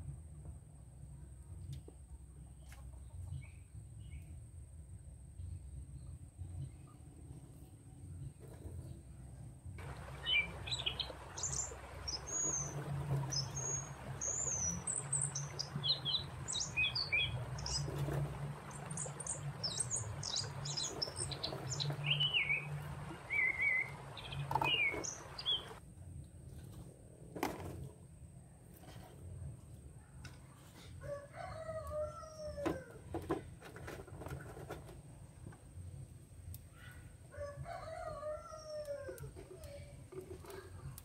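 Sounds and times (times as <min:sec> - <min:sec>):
small birds chirping: 0:09.8 - 0:25.8
steady background hiss: 0:09.8 - 0:25.8.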